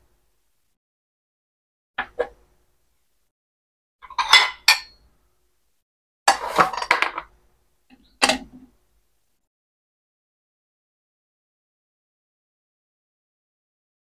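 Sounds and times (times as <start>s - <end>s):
dishes and cutlery clinking: 4.0s - 5.0s.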